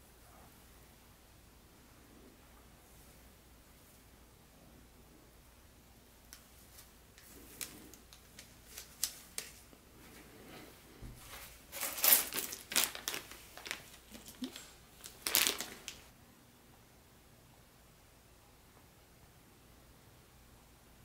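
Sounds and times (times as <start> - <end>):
plastic bag crinkling: 11.7 - 16.1.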